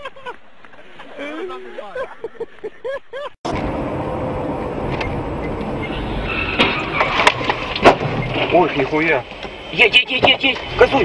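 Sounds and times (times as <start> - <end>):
car engine and road noise: 3.4 - 11.0.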